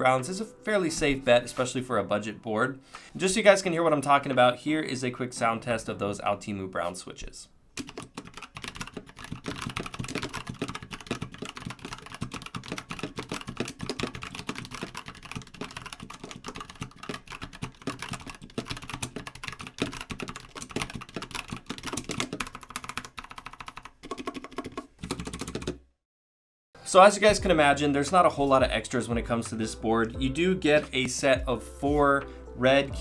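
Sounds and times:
fast mechanical keyboard typing: 7.8s - 25.8s.

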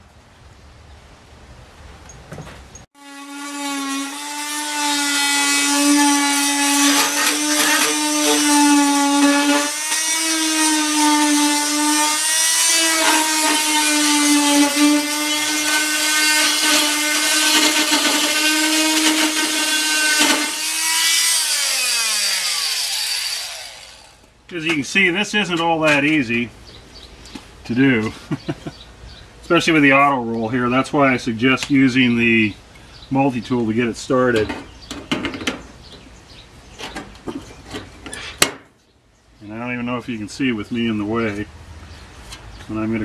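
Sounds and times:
oscillating multi-tool buzzing: 3.0s - 13.8s, 14.6s - 24.3s.

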